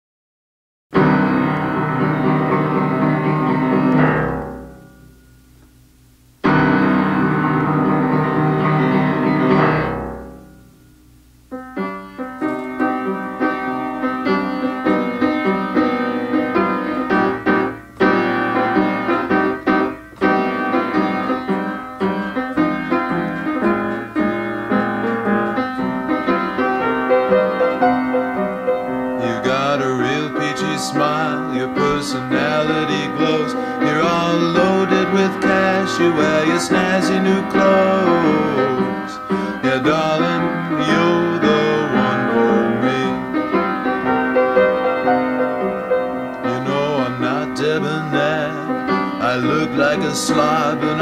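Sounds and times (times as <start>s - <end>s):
held keyboard chords: 1.0s - 5.4s, 11.5s - 51.0s
rhythmic keyboard accompaniment: 11.6s - 51.0s.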